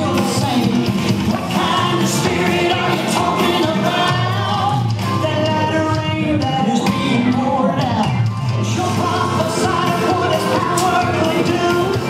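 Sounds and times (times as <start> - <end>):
country song with singer: 0.0 - 12.0.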